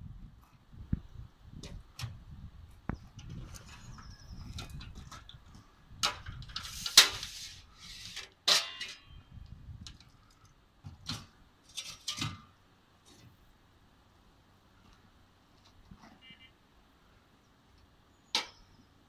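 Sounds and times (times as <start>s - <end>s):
metal ramp clanking and rattling: 8.1s - 9.2s.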